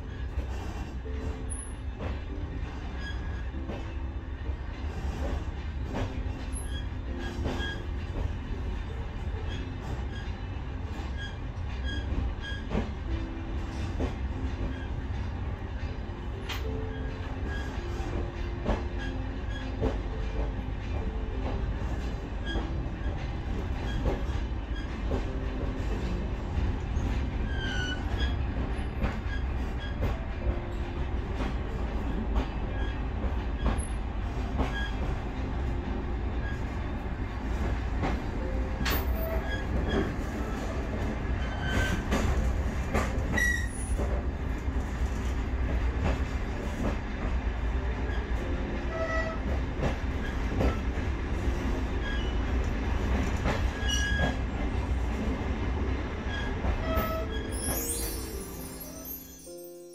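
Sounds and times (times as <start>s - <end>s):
train rumbling on rails: 0.0s - 59.9s
wheel squeaks: 38.0s - 44.1s, 56.3s - 59.6s.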